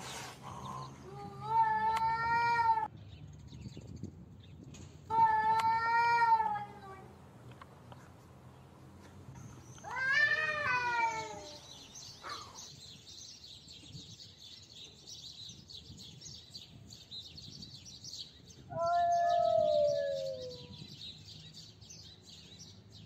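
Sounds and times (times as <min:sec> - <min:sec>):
cats yowling: 0:09.9 - 0:11.6, 0:18.7 - 0:20.7.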